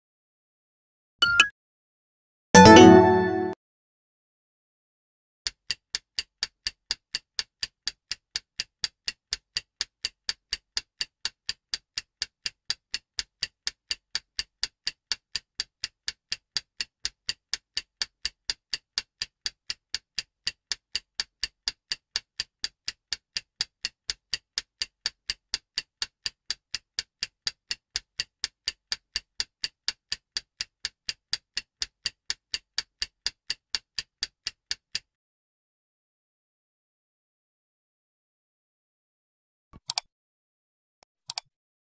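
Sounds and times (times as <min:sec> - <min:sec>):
clock ticking: 0:05.5 - 0:35.1.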